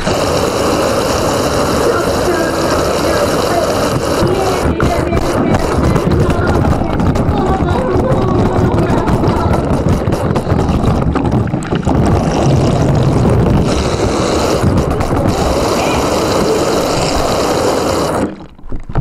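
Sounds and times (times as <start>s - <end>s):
muffled rumbling and rubbing: 0.0s - 19.0s.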